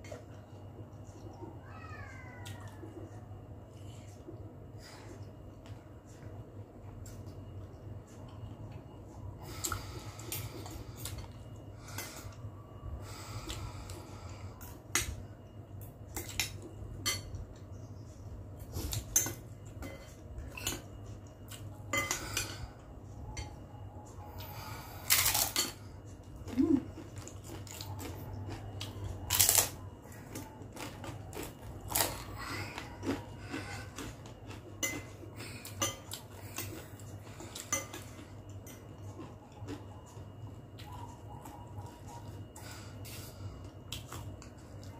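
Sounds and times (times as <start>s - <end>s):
crunchy bites: 27.2s - 34.2s.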